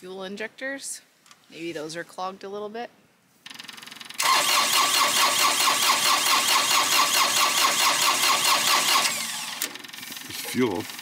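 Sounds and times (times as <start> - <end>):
diesel engine cranking: 3.5 - 11.0.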